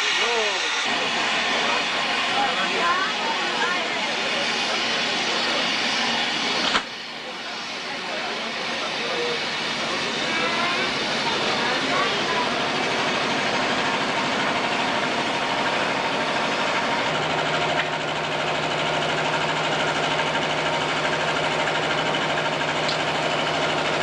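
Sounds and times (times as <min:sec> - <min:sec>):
steam hissing: 0:00.0 - 0:24.0.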